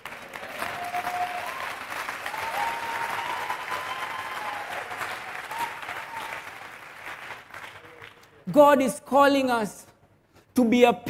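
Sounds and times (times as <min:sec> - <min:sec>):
congregation applauding: 0:00.0 - 0:08.4.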